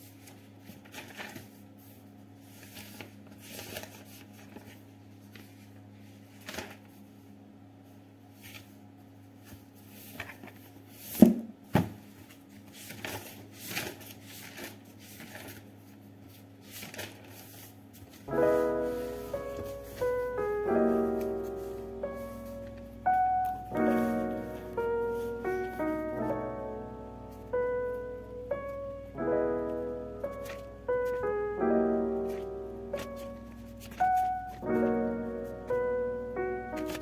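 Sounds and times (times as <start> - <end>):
book pages flipping: 0.0 - 7.0, 8.3 - 8.8, 9.4 - 26.4, 29.7 - 31.4, 32.2 - 35.8, 36.7 - 37.0
faint low hum: 0.0 - 37.0
book thumps: 10.2 - 14.0.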